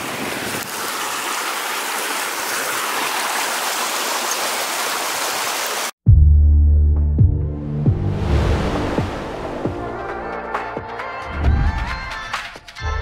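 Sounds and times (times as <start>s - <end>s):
stream running over rocks: 0.0s - 6.0s
music with deep bass: 6.1s - 13.0s.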